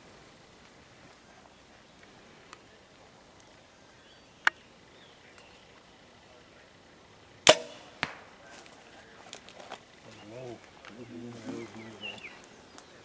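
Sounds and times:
arrow hitting foam target: 7.5 - 8.3.

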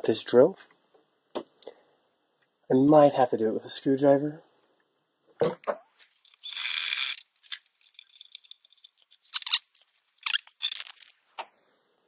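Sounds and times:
metal parts rattling: 6.0 - 11.1
tool whirring: 6.4 - 7.2.

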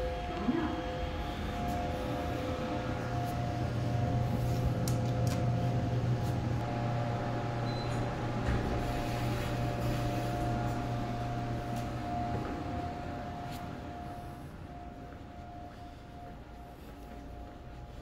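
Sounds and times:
elevator high whine: 0.0 - 18.0
elevator low hum: 0.0 - 18.0.

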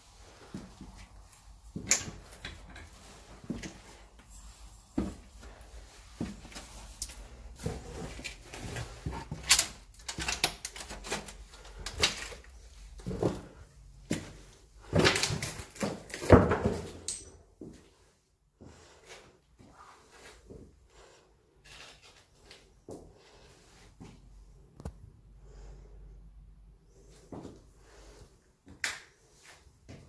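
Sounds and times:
footsteps and handling scuffs: 0.4 - 9.7.

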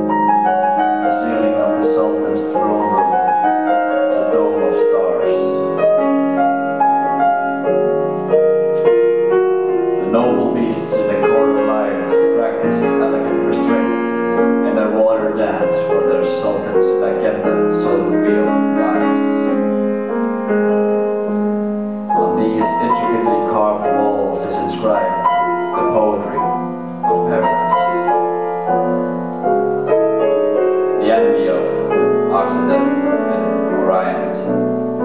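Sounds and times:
grand piano playing: 0.0 - 35.0.

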